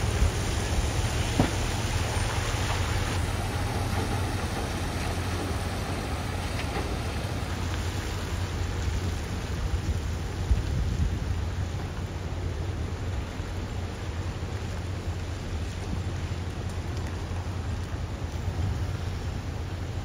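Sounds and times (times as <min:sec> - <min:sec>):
truck diesel engine running: 0:00.0 - 0:07.7
rain on wet pavement: 0:00.0 - 0:20.0.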